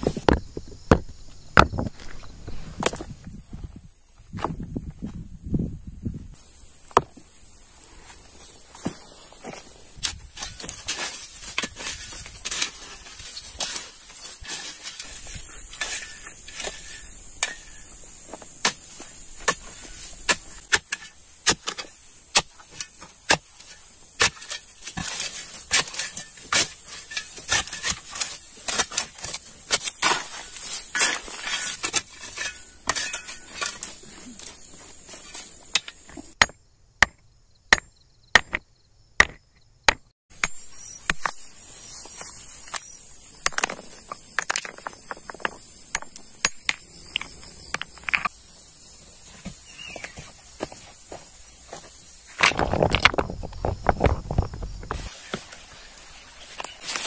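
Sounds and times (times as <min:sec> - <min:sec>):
crickets chirping: 0:00.0 - 0:57.0
digging tool chopping stony soil: 0:08.8 - 0:38.6, 0:39.2 - 0:41.4, 0:52.4 - 0:55.5.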